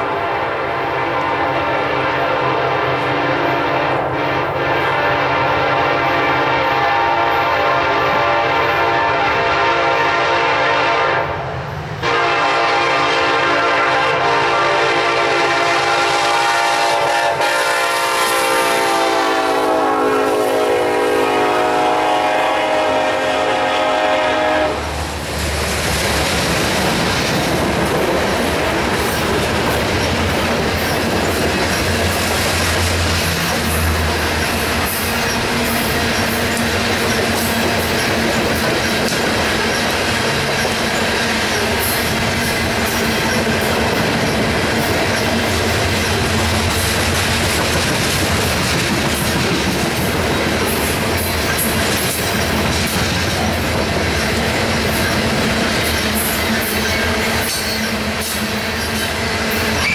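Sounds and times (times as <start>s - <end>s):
locomotive horn blast: 0.0s - 11.4s, 12.0s - 24.9s
train cars rolling and clacking: 11.6s - 59.9s.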